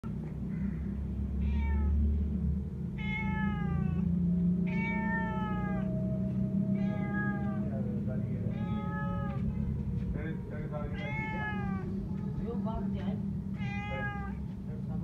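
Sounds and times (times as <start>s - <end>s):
steady low hum: 0.0s - 15.0s
kitten meowing: 3.0s - 4.1s, 4.7s - 7.8s, 8.5s - 9.5s, 10.9s - 12.0s, 13.6s - 14.4s.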